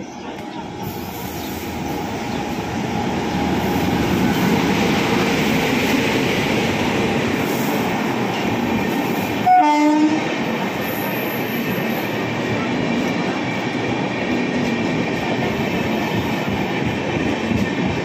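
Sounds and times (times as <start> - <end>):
train passing at speed: 0.0 - 18.0
train horn blast: 9.4 - 10.3.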